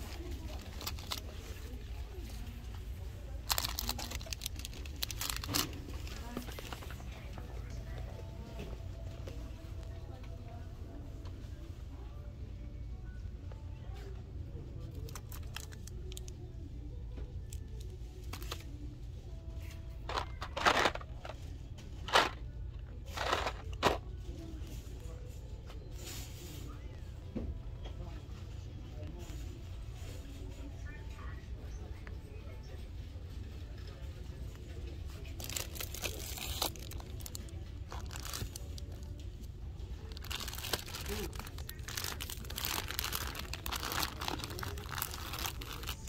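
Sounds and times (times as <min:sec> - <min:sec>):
wrappers crinkling: 0:00.0 - 0:01.7, 0:03.4 - 0:07.0, 0:15.0 - 0:16.3, 0:35.3 - 0:46.0.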